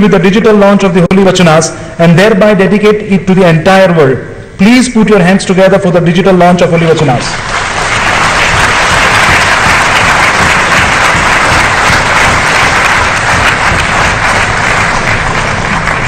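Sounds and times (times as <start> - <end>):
crowd clapping: 7.2 - 16.0.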